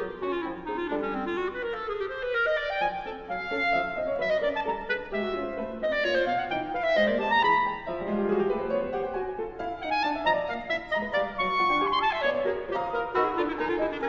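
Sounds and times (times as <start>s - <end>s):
clarinet playing short notes: 0.0s - 7.9s
piano accompaniment: 0.0s - 14.0s.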